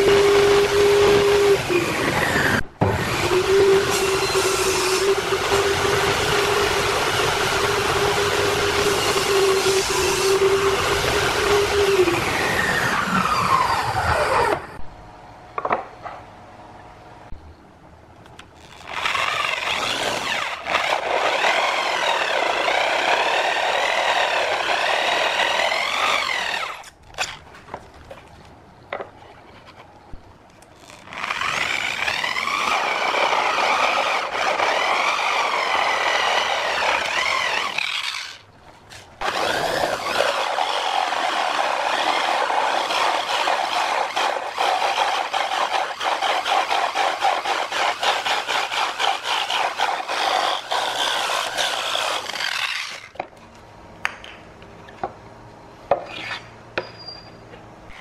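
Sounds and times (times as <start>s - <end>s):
power drill cutting wood: 0.0s - 14.7s, 18.6s - 26.9s, 30.8s - 38.4s, 39.2s - 53.2s.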